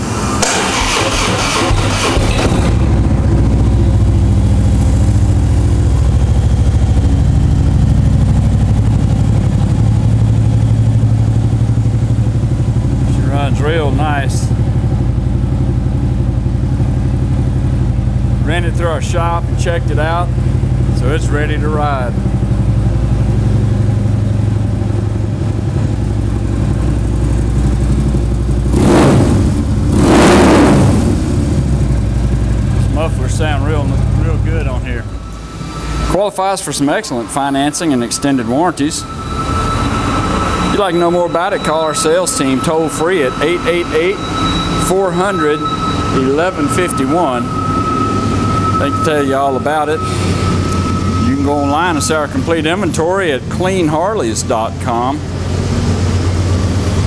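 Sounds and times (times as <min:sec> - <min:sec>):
motorcycle engine idling: 0:02.7 - 0:28.8, 0:31.4 - 0:35.3.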